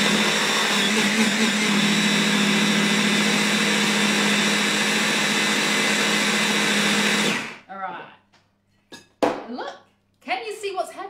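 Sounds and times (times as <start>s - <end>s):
stick blender grinding: 0.0s - 7.6s.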